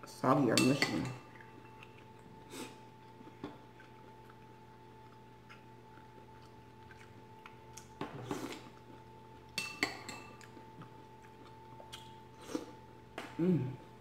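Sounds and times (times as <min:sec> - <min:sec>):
spoon clinking on bowl: 0:09.6 - 0:10.4.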